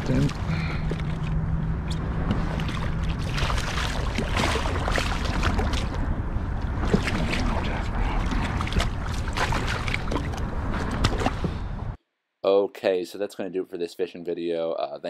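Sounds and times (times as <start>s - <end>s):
water sloshing around kayak: 0.0s - 11.7s
wind rumbling on microphone: 0.0s - 12.0s.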